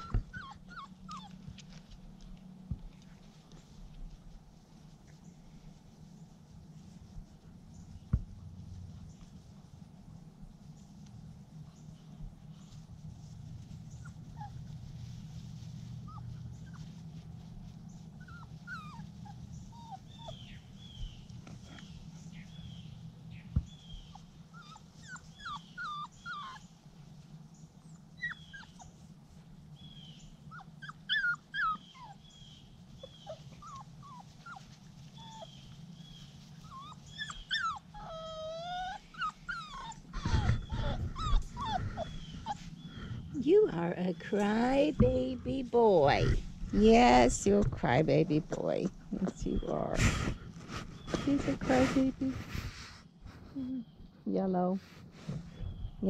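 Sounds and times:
puppies whimpering and crying: 0:00.0 - 0:01.4, 0:18.0 - 0:21.8, 0:23.8 - 0:26.8, 0:27.8 - 0:29.1, 0:30.4 - 0:43.5
steady low hum: 0:00.0 - 0:56.0.

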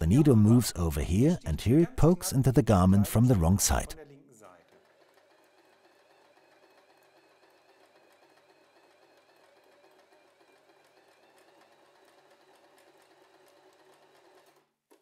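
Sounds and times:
sewing machine running: 0:04.7 - 0:15.0.

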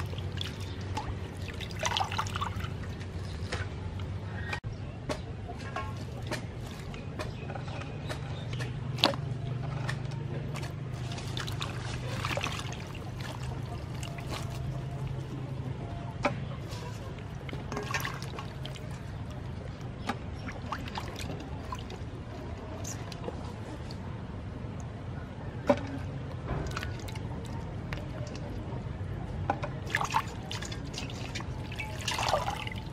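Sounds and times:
water splashing in a steel bowl: 0:00.0 - 0:03.6, 0:09.9 - 0:15.8, 0:16.7 - 0:23.3, 0:26.6 - 0:28.9, 0:29.6 - 0:32.9.

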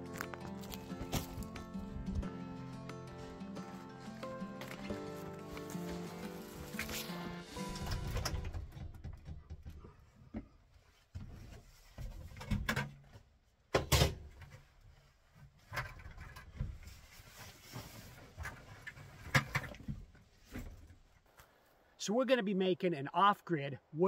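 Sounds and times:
knocks and thumps of handling: 0:07.9 - 0:13.2.

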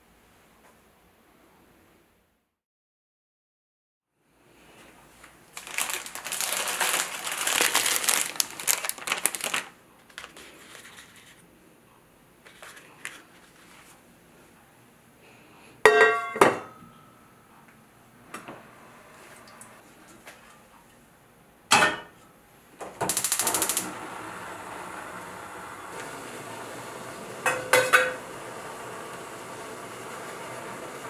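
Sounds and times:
plastic packaging crinkling: 0:05.2 - 0:11.4.

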